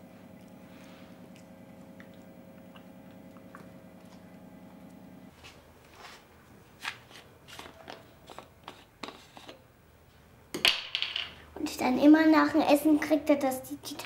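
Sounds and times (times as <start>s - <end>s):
low steady hum: 0.0s - 6.7s.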